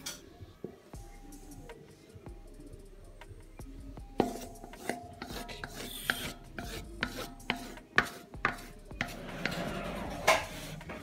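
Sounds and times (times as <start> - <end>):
spatula scraping bowl: 4.2 - 11.0.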